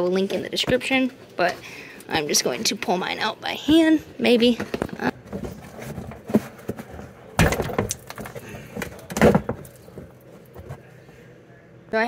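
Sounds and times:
plastic scraping: 4.6 - 10.9.

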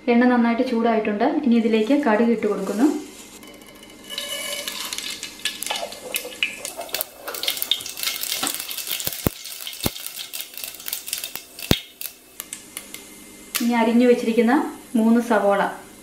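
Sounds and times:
seeds sizzling in hot oil: 2.5 - 13.7
sharp pops of spluttering seeds: 4.9 - 13.0.

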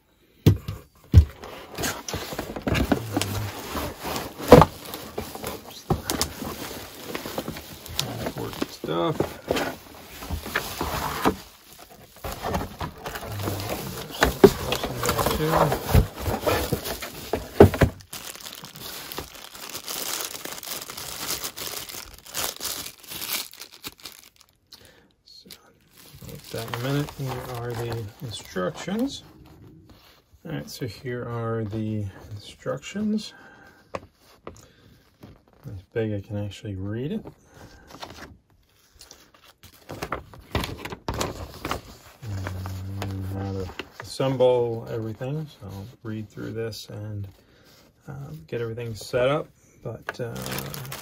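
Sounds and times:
cardboard and bubble wrap rustling: 0.6 - 24.7, 25.8 - 33.2, 36.9 - 49.4, 50.0 - 51.0
plastic packaging crinkling: 1.4 - 29.1, 50.1 - 51.0.

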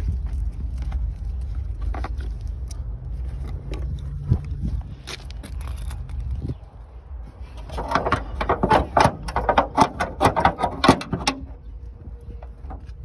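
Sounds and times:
sharp irregular clicks and knocks: 7.6 - 11.6.

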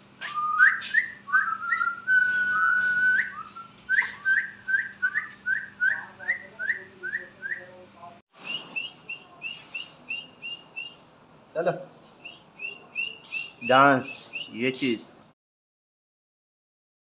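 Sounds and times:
person whistling: 0.2 - 5.8, 12.2 - 14.6.

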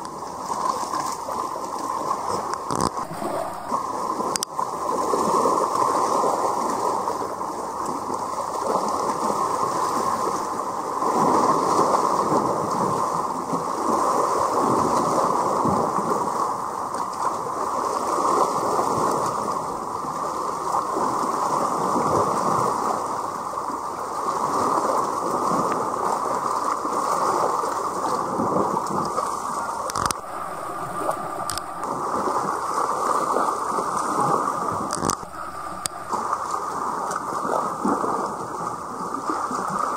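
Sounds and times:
seawater sloshing and gurgling: 0.3 - 6.4, 25.3 - 39.9.

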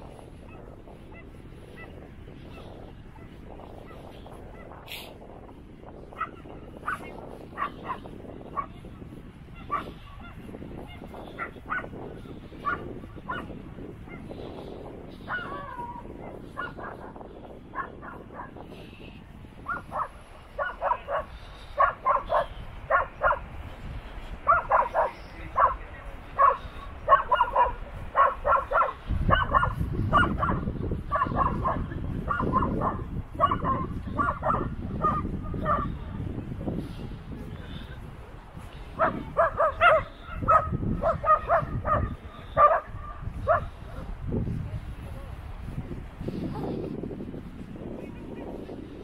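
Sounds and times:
dog barking: 0.4 - 1.9, 2.5 - 4.8, 6.1 - 14.3, 15.2 - 18.6, 19.6 - 23.5, 24.4 - 36.0, 39.0 - 44.1.

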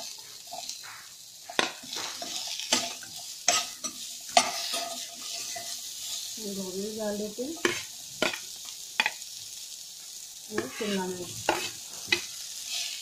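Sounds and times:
vegetables sizzling in a pan: 0.0 - 13.0
spoon scraping and clinking on metal: 2.0 - 6.2.

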